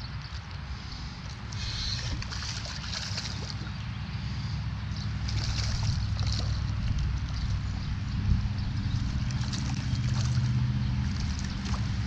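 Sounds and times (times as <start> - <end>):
steady low rumble: 0.0 - 12.0
fish splashing in water: 1.4 - 3.9, 5.2 - 7.9, 8.9 - 12.0.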